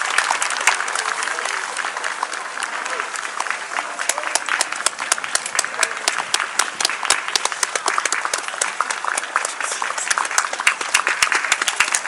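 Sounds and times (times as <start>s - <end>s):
spectators applauding: 0.0s - 12.0s.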